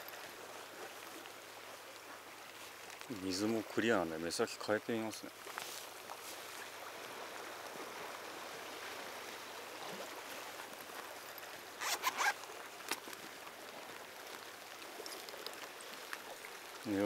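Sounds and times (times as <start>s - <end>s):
faint hiss of sea and breeze: 0.0s - 17.0s
zipper pulled open: 11.8s - 13.0s.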